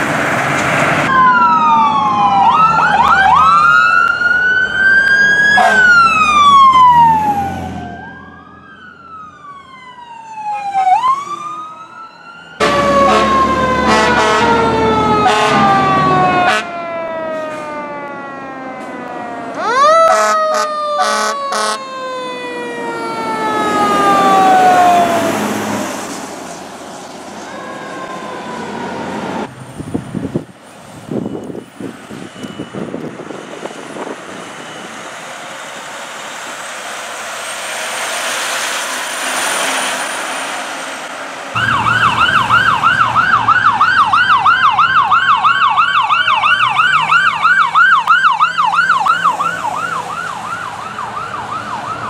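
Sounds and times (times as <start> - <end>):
fire truck siren wailing: 0.0 - 52.0
short siren blasts: 1.1 - 26.0, 27.4 - 30.0, 41.6 - 52.0.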